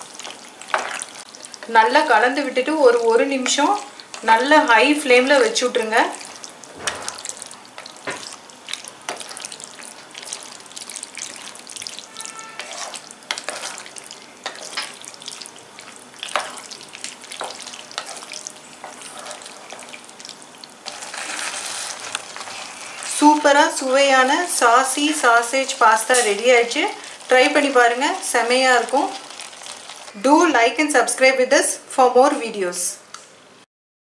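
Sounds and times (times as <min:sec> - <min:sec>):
food sizzling in a pan: 0:00.0 - 0:31.6
spatula scraping a pan: 0:11.3 - 0:15.0, 0:17.4 - 0:20.0, 0:20.8 - 0:23.2.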